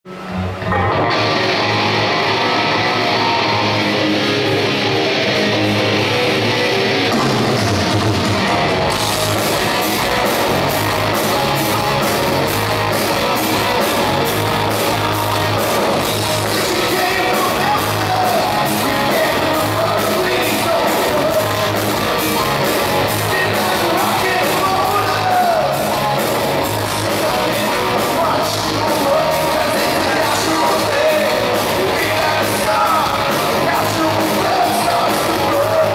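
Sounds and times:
metal band playing: 0:00.1 - 0:35.9
man singing: 0:14.8 - 0:26.0, 0:26.6 - 0:35.9.

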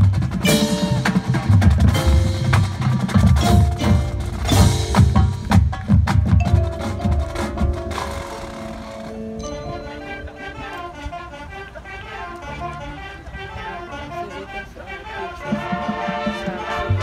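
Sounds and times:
marching drums: 0:00.0 - 0:09.2
mallet keyboards ringing: 0:00.4 - 0:10.6.

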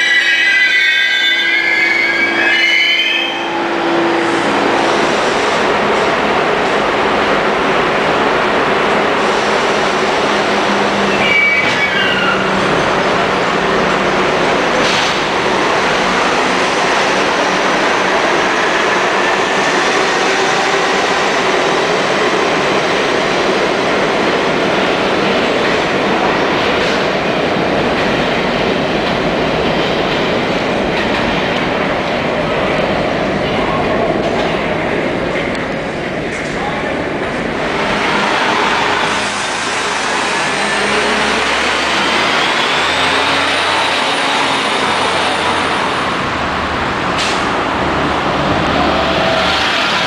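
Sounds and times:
subway train running past: 0:00.0 - 0:50.0
wheels squealing: 0:11.1 - 0:12.6.

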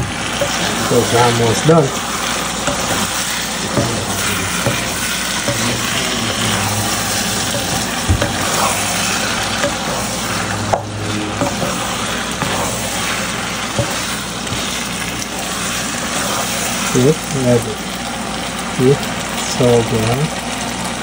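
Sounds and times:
wooden spatula scraping a pan: 0:00.0 - 0:17.0
food sizzling: 0:00.0 - 0:21.0
spatula knocking against pan: 0:02.7 - 0:02.9, 0:03.7 - 0:06.0, 0:07.4 - 0:08.7, 0:09.5 - 0:10.0, 0:10.6 - 0:11.8.

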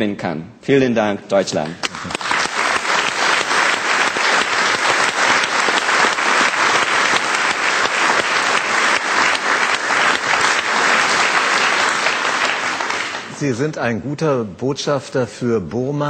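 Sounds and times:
audience applauding: 0:01.8 - 0:13.5.

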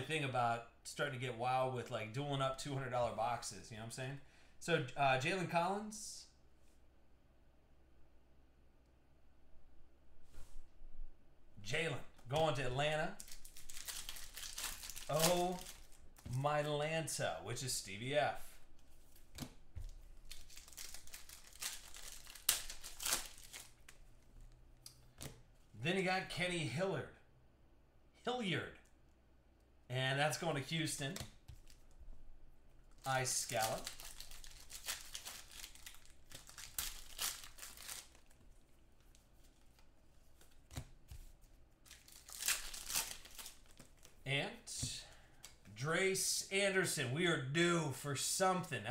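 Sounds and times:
cards being handled: 0:12.2 - 0:16.4, 0:18.7 - 0:25.4, 0:32.9 - 0:44.2
foil wrapper crinkling: 0:13.1 - 0:16.3, 0:19.9 - 0:24.0, 0:33.3 - 0:39.3, 0:41.8 - 0:44.2.

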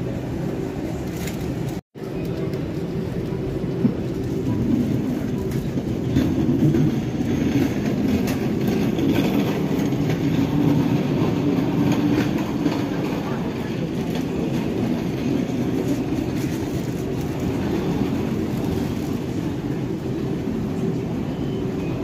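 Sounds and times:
low rumbling background din: 0:00.0 - 0:22.0.

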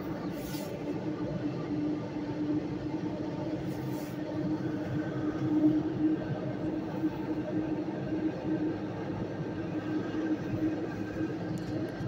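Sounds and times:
train rumbling through tunnel: 0:00.0 - 0:12.0
brief hisses: 0:00.3 - 0:00.8.

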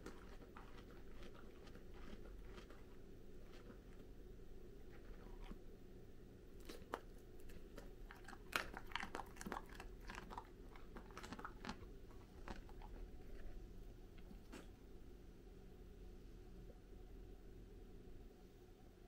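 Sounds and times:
dog crunching carrot: 0:00.0 - 0:04.1, 0:04.8 - 0:05.6, 0:06.6 - 0:13.6.

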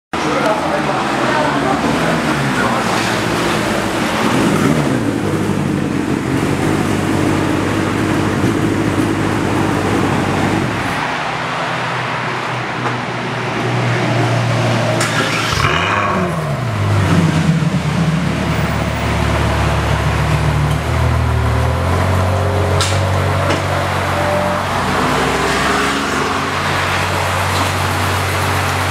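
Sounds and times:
car engine idling: 0:00.2 - 0:13.6, 0:14.9 - 0:28.9
engine rev: 0:00.3 - 0:11.1, 0:13.8 - 0:28.9.

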